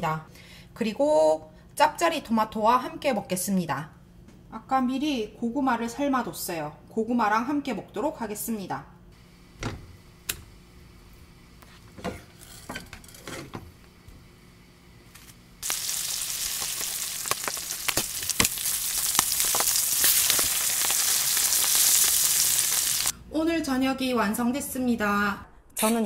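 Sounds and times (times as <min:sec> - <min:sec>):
fish sizzling in butter: 0:15.6 - 0:23.1.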